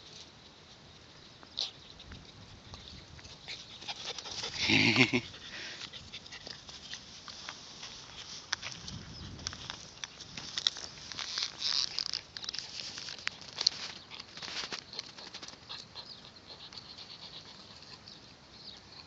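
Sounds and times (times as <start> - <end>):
dog gnawing wooden stick: 7.8 - 18.2.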